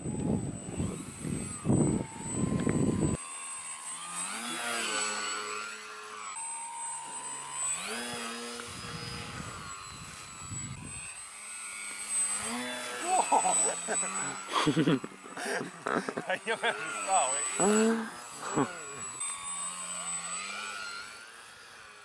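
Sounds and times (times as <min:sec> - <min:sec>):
wind buffeting microphone: 0:00.0 - 0:03.2, 0:08.7 - 0:11.1
model plane motor whining: 0:00.0 - 0:22.0.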